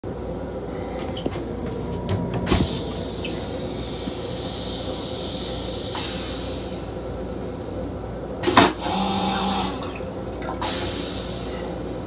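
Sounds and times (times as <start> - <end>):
toilet flushing: 8.4 - 12.0.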